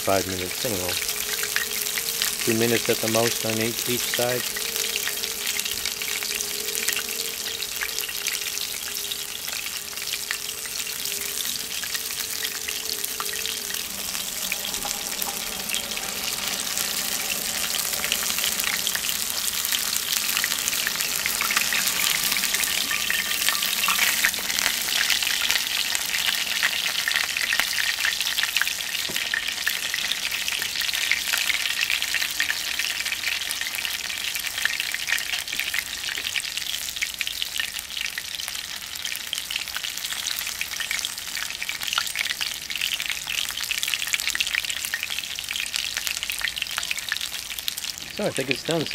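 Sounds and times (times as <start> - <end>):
fish sizzling in hot oil: 0.0 - 48.9.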